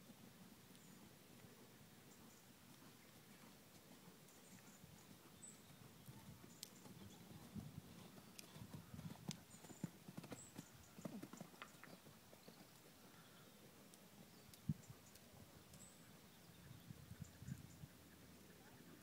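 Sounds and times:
horse hoofbeats on soft ground: 2.2s - 13.1s.

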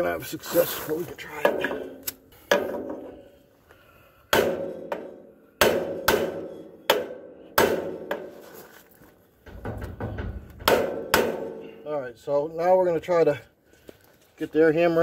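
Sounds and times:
hammer striking steel punch: 4.3s - 8.3s, 10.6s - 11.8s.

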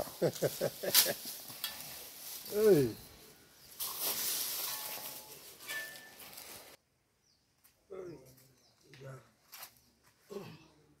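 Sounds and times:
soft hissing noise: 0.0s - 6.8s.

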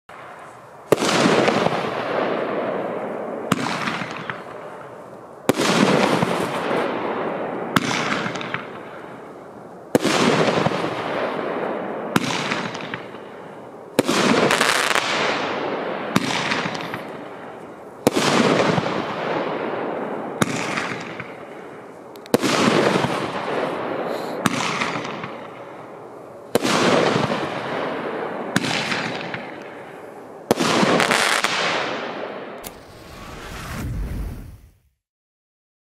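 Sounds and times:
sharp crack: 30.5s - 34.9s.

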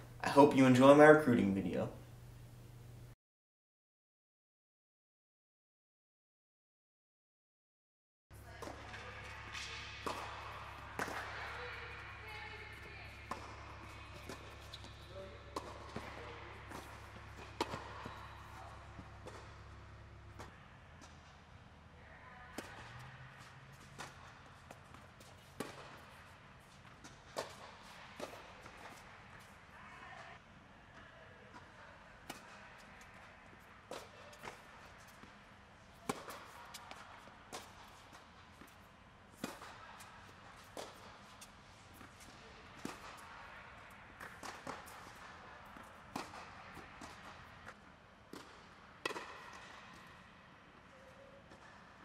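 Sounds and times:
tennis ball bouncing on court: 8.4s - 21.4s, 22.5s - 29.6s, 33.9s - 35.4s, 36.0s - 43.5s, 44.2s - 50.2s
tennis ball hit by racquets: 8.4s - 21.4s, 22.5s - 29.6s, 30.9s - 35.4s, 36.0s - 50.2s, 51.5s - 51.9s.

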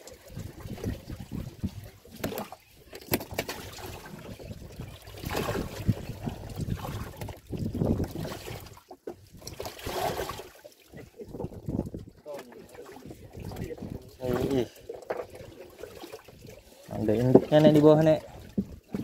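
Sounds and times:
water lapping against boat hull: 0.0s - 19.0s.

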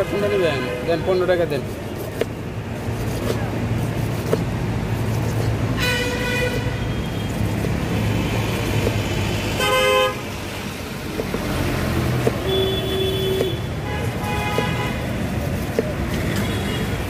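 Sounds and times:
low traffic rumble: 0.0s - 17.0s
vehicle horns honking: 5.8s - 7.2s, 9.6s - 10.2s, 12.4s - 15.1s.

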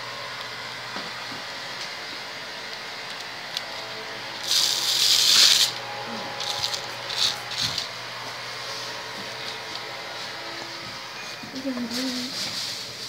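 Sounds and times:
loud even hiss: 4.4s - 5.8s.

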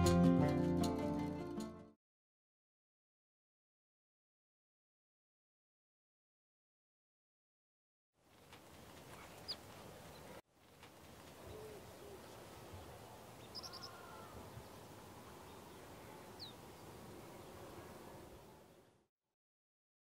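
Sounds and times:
bird chirps: 9.1s - 10.4s, 11.4s - 17.8s.

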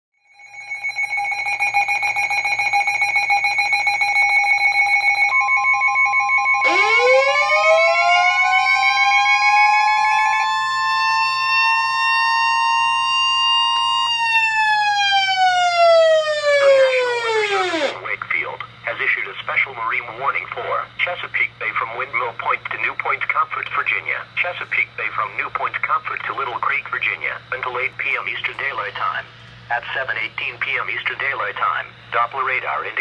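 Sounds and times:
rapid electronic beeping alarm: 0.2s - 18.0s
steady warning alarm tone: 0.2s - 18.2s
siren-style alert: 0.3s - 18.0s.

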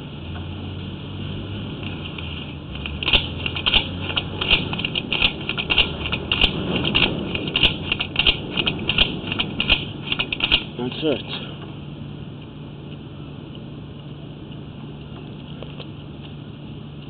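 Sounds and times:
low steady hum: 0.0s - 17.0s
camera cable clicking and rattling: 2.8s - 10.7s.

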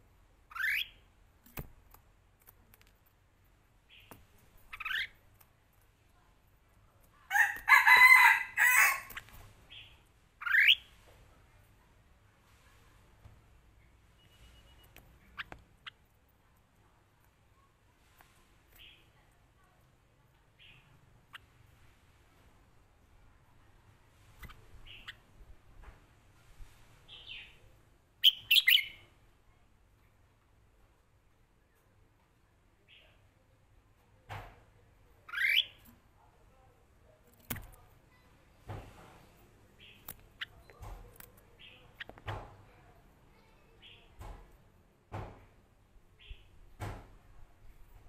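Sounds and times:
sharp bird chirps: 0.5s - 1.0s, 3.9s - 5.2s, 9.7s - 10.9s, 28.2s - 29.1s, 35.3s - 35.8s.

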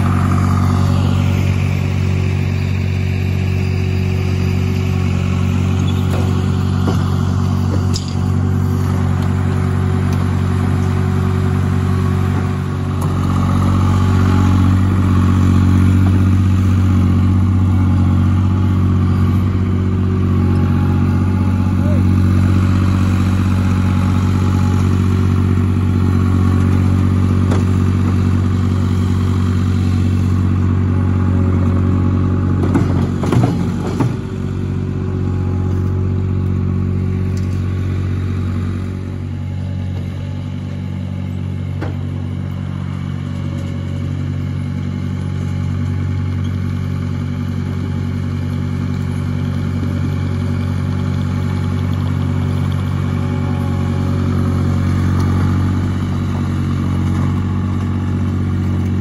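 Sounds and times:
tracked loader engine running: 0.0s - 59.0s.

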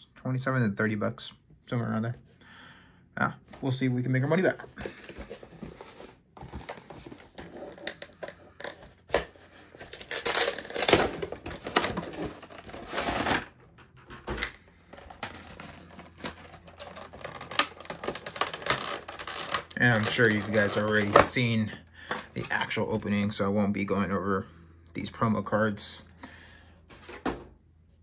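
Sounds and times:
packaging rustling and tearing: 4.8s - 13.5s, 14.9s - 21.5s.

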